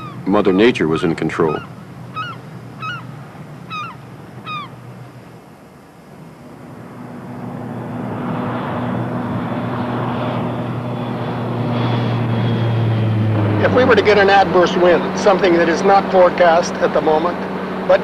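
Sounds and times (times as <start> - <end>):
short bird calls: 0.0 - 4.8
propeller plane droning: 0.0 - 18.0.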